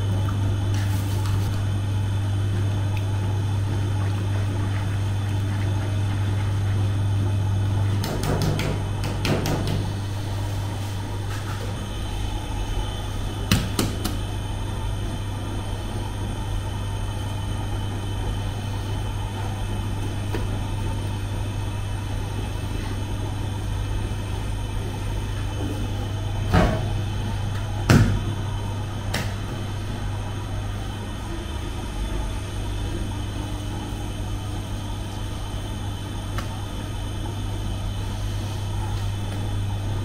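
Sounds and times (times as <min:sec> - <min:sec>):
bakery machinery hum: 0:00.0 - 0:40.0.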